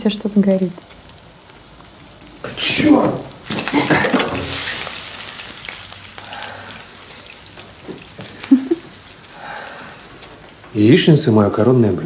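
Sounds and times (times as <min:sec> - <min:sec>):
eggs sizzling in a frying pan: 0:00.0 - 0:12.0
pan clattering: 0:03.4 - 0:05.0.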